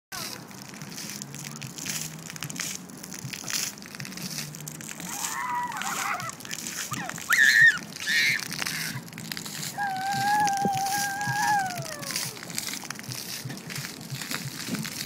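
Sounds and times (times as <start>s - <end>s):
fountain jets hissing: 0.1s - 15.0s
toddler squealing: 5.1s - 9.0s, 9.6s - 12.4s.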